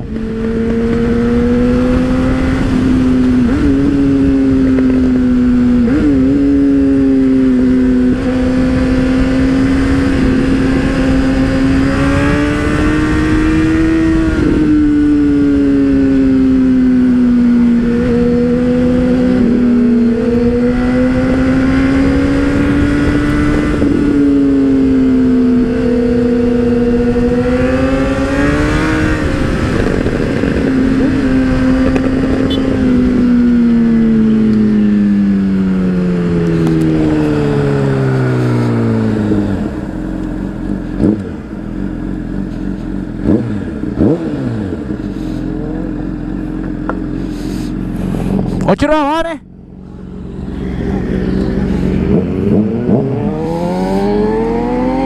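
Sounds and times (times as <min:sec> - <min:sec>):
wind rush: 0:00.0 - 0:16.4, 0:17.3 - 0:34.3
motorcycle engine running: 0:00.0 - 0:55.0.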